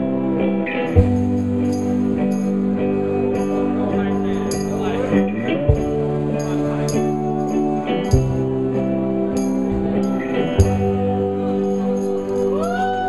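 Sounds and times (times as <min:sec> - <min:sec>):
folk band playing held chords: 0:00.0 - 0:13.0
tambourine jingling: 0:00.9 - 0:13.0
audience whooping and cheering: 0:12.3 - 0:13.0.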